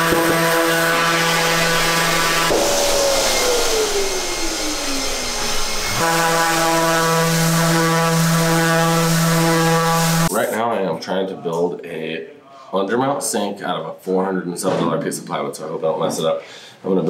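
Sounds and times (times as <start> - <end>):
orbital sander whining: 0.0 - 10.3.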